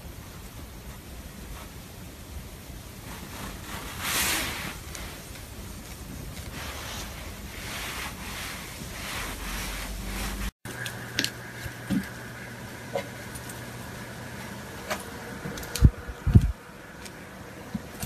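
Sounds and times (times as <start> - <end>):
hand rubbing cat fur: 3.0 - 10.5.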